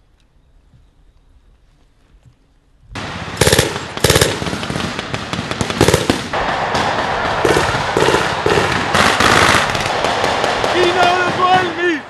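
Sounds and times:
automatic weapons fire: 3.0 - 11.8.

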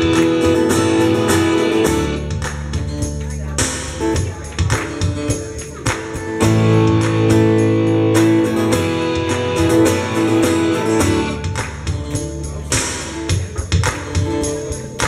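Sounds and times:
acoustic guitar strumming: 0.0 - 15.0.

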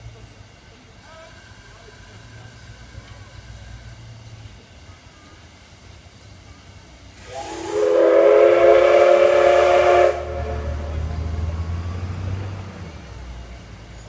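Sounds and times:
steam locomotive whistle blast: 7.2 - 11.6.

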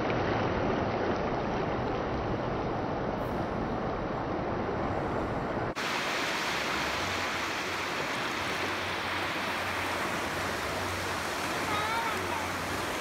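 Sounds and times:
waves washing over stone: 5.8 - 13.0.

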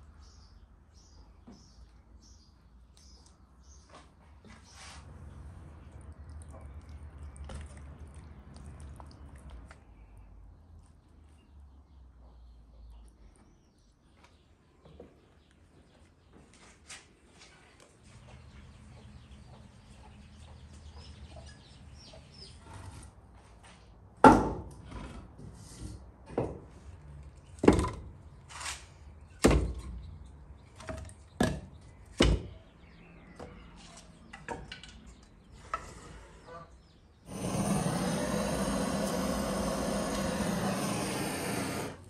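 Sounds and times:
blowtorch roaring hiss: 37.3 - 42.0.

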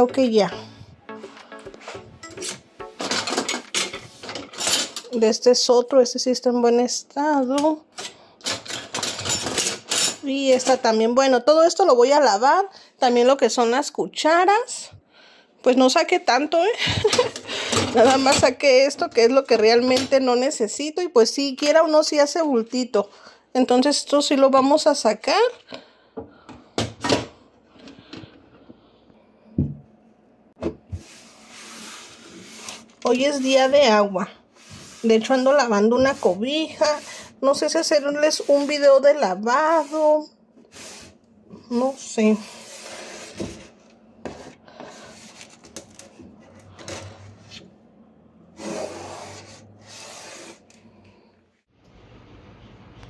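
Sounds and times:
utensils clacking together: 2.2 - 5.2
cloth rag wiping plywood: 39.6 - 41.1.

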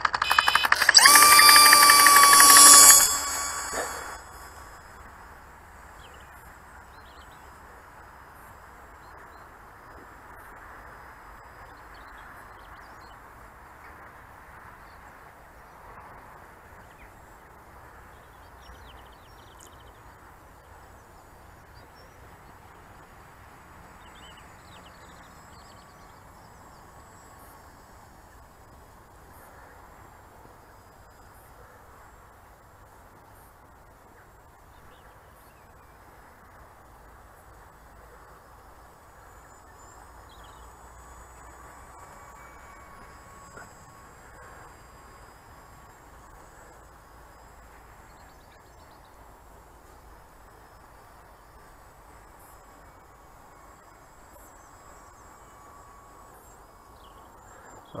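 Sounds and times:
model plane motor whining: 0.0 - 4.6
faint outdoor background: 0.0 - 58.0.

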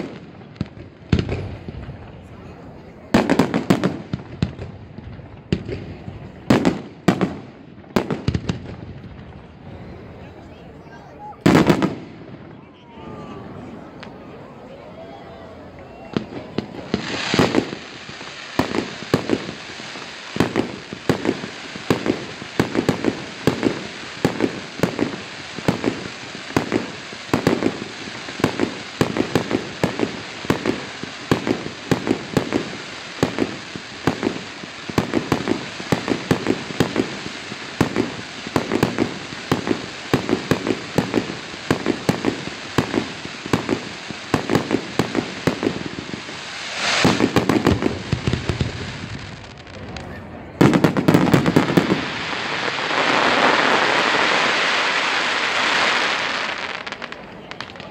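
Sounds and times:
fireworks bangs and crackles: 0.0 - 57.9
steady hiss: 16.6 - 49.5.

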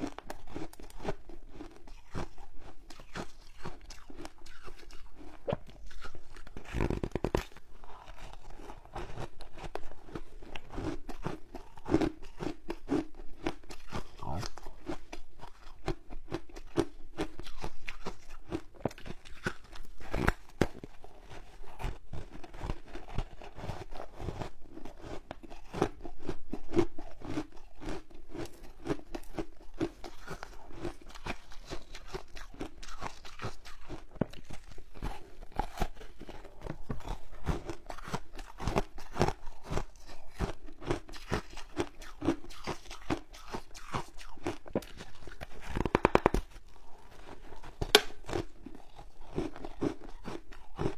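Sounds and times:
crunching and chewing ice: 0.0 - 50.9.

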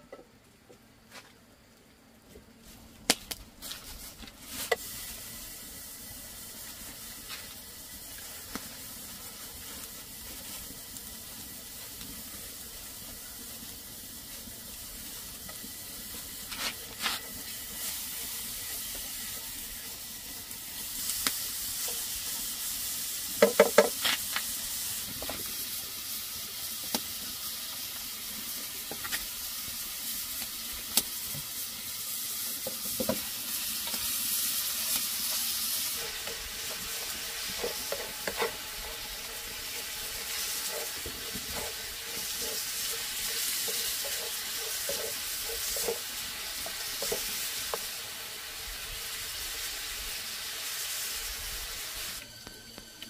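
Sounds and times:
food sizzling in a pan: 3.5 - 53.0.

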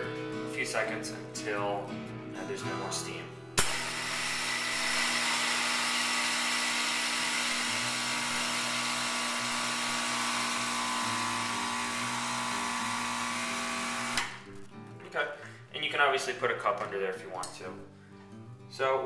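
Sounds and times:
espresso machine pump humming: 3.6 - 14.4.

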